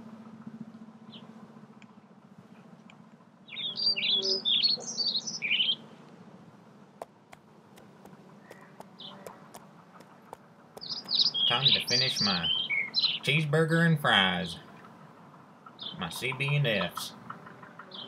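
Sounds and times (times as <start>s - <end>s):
steady low hum: 0.0s - 18.0s
songbird chirping: 0.2s - 6.3s, 7.0s - 18.0s
sharp clicks: 7.0s - 11.5s.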